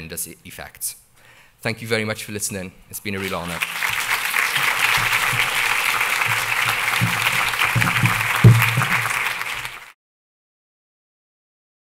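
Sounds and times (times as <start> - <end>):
audience applauding: 3.2 - 10.0.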